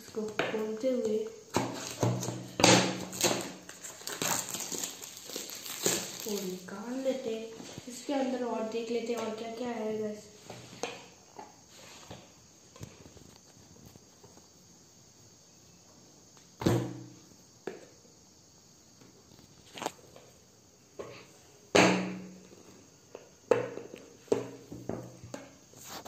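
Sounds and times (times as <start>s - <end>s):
knocks and thumps on box: 1.5s - 3.5s, 23.5s - 25.5s.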